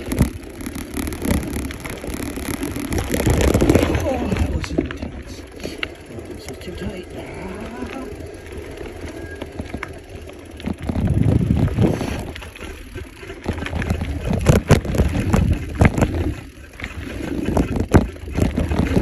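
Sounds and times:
bike rattling over bumps: 0:00.0 - 0:19.0
bike tyres rumbling over dirt: 0:00.0 - 0:19.0
wind buffeting microphone: 0:06.1 - 0:19.0.

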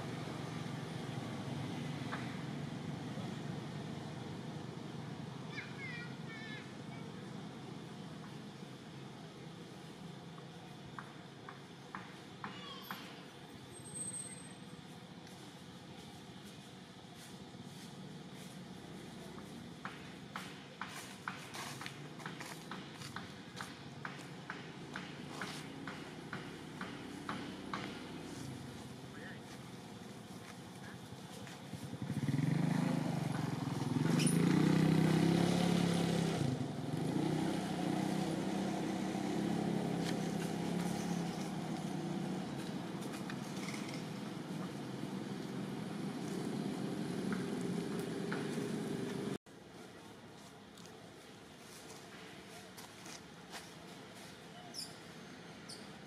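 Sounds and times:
motor vehicle engine running: 0:14.8 - 0:49.4.

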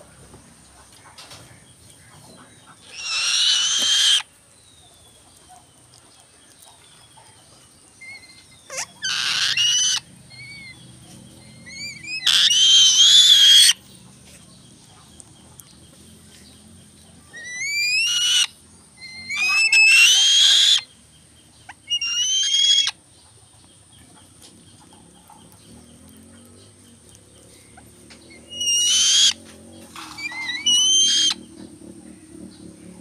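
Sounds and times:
bird shrill rising calls: 0:17.4 - 0:20.9, 0:21.9 - 0:23.0, 0:30.0 - 0:31.4.

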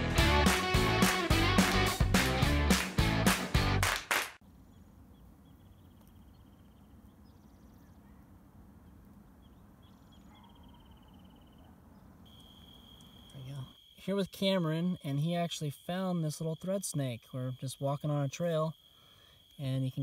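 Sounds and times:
guitar music: 0:00.0 - 0:03.9
cricket trilling: 0:04.5 - 0:07.9, 0:08.8 - 0:20.0.

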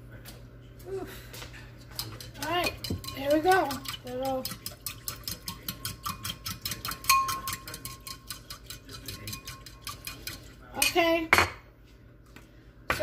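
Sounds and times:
fork clinking in glass bowl: 0:01.9 - 0:11.0.

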